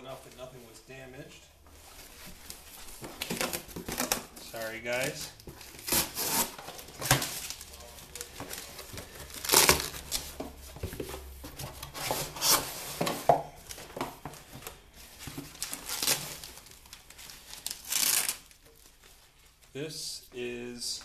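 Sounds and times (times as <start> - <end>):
foam wrapping rustling: 1.7 - 19.8
cardboard tearing: 5.0 - 10.4, 11.9 - 13.1, 15.4 - 16.7, 17.3 - 18.6.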